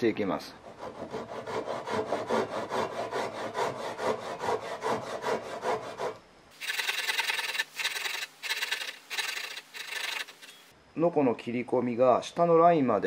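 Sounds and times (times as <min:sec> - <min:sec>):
hand saw cutting wood: 0:00.7 - 0:10.6.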